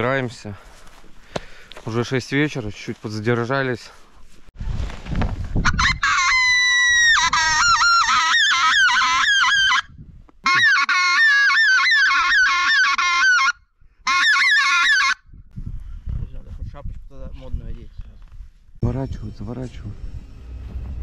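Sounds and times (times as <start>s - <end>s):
geese honking: 10.4s - 15.2s.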